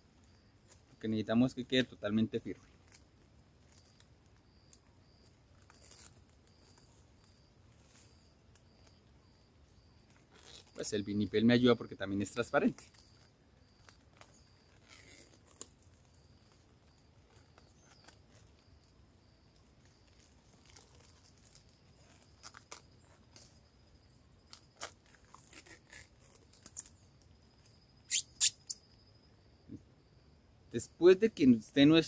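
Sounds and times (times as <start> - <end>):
plastic cling film crinkling: 5.5 - 6.9, 20.0 - 23.5, 24.5 - 27.0.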